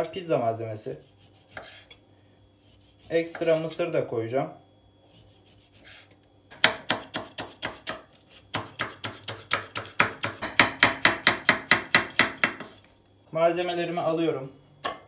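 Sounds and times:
knife chopping on wooden board: 1.5 - 1.8, 6.5 - 12.8.

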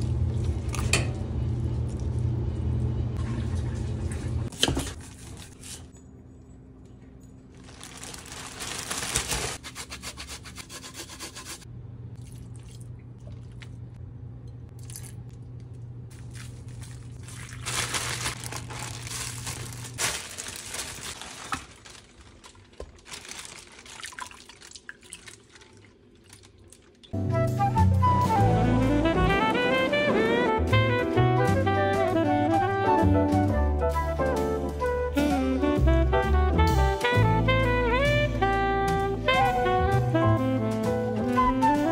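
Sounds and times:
plastic bag crinkling: 7.5 - 9.6, 16.1 - 26.7
liquid dripping: 12.2 - 14.0, 22.4 - 27.2
marinade sloshing: 12.2 - 14.0, 14.7 - 27.2.

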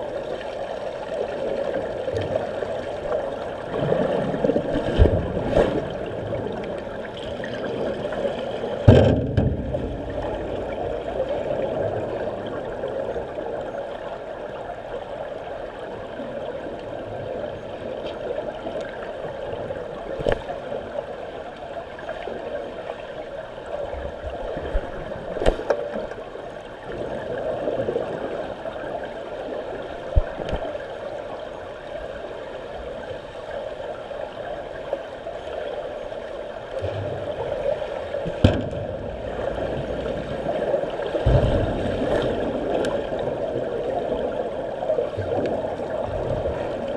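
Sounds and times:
muffled underwater rushing: 0.0 - 46.9
sharp underwater knocks: 8.8 - 10.6, 38.3 - 39.2, 41.2 - 42.4.

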